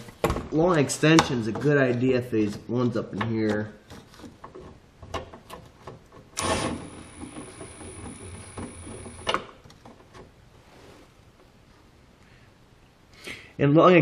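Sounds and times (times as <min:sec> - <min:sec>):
power ratchet motor whine: 0:06.4 - 0:09.4.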